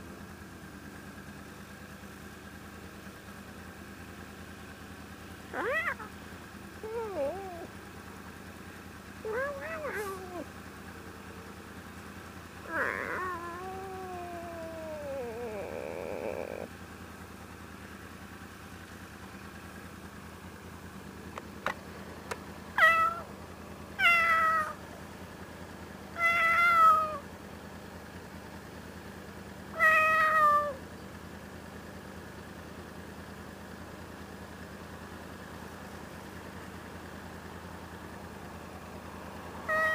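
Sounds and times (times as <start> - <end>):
motorcycle engine idling: 0.0 - 39.9
cat meowing: 5.5 - 6.1, 6.8 - 7.7, 9.2 - 10.5, 12.6 - 16.7, 22.8 - 23.3, 24.0 - 24.8, 26.2 - 27.2, 29.8 - 30.8, 39.6 - 39.9.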